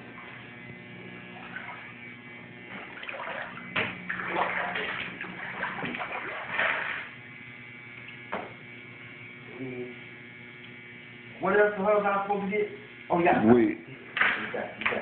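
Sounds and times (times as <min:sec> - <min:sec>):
low electrical hum: 0:00.0 - 0:15.0
footsteps splashing through water: 0:02.9 - 0:07.0.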